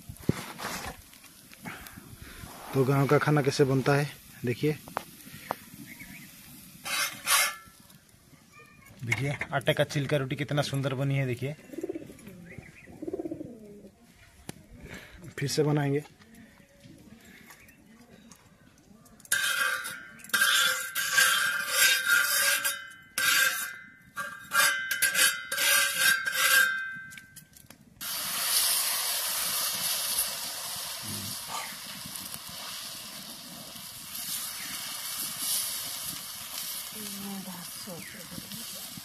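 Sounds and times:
hot griddle sizzling: 0:00.0 - 0:08.2, 0:19.3 - 0:23.8, 0:28.0 - 0:39.0.

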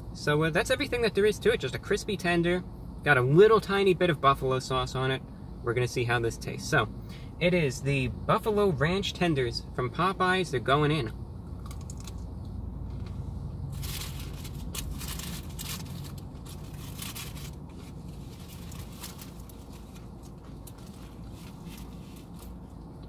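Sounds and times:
crunching and chewing fried chicken: 0:11.6 - 0:12.2.

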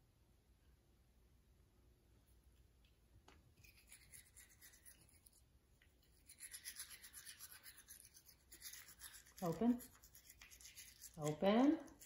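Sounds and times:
toothbrush bristle strokes: 0:03.6 - 0:12.0.

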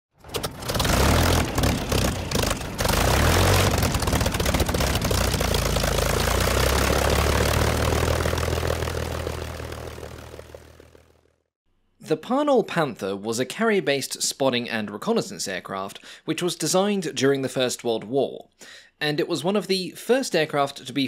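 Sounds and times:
propeller aircraft piston engine: 0:00.3 - 0:11.4.

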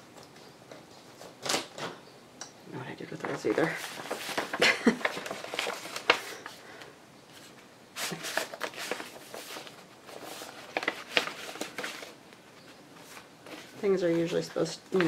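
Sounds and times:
paper rustling and shuffling: 0:03.1 - 0:15.0.

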